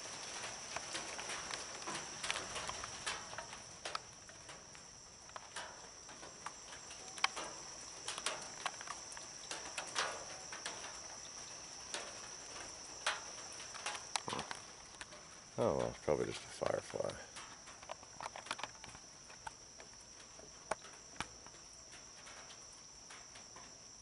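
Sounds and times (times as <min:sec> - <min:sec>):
night insects chirping: 0:00.0 - 0:24.0
faint clicks and taps: 0:05.2 - 0:11.3, 0:11.9 - 0:23.8.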